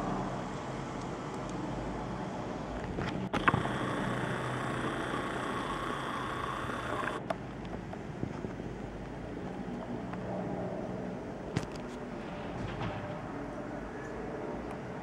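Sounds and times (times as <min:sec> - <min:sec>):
distant urban rumble: 0:00.0 - 0:15.0
camcorder zoom motor whirring: 0:03.3 - 0:07.2.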